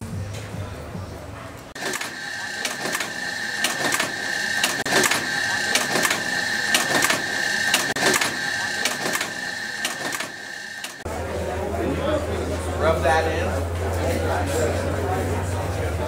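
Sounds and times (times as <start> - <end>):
machine clacking: 1.7 - 11.1
machine motor whining: 1.7 - 11.1.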